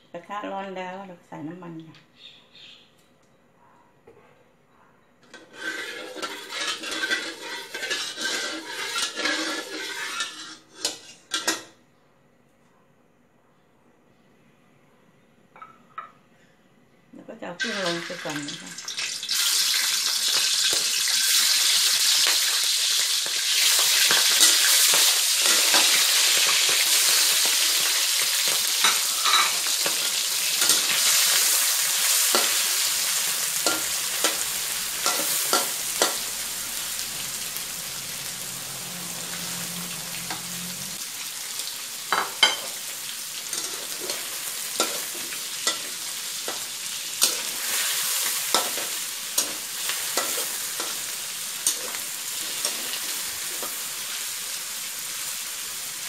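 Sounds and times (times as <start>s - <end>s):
spatula scraping and clacking wok: 5.3s - 11.8s, 19.5s - 40.7s, 42.1s - 54.5s
shrimp sizzling in hot oil: 5.4s - 11.6s, 17.6s - 56.0s.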